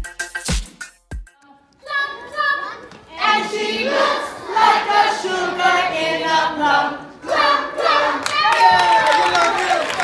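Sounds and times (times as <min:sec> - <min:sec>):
group of voices singing: 0:03.1 - 0:08.4.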